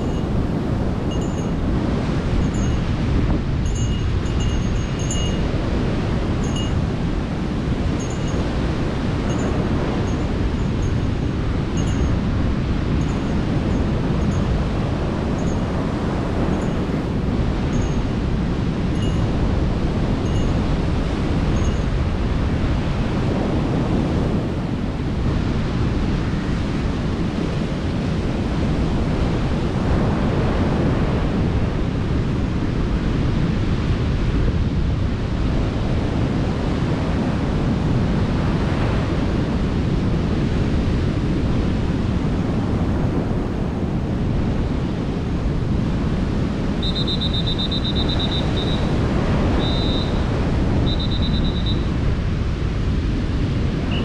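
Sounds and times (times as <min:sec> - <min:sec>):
wind buffeting microphone: 0:00.0 - 0:54.0
heavy surf breaking: 0:42.8 - 0:54.0.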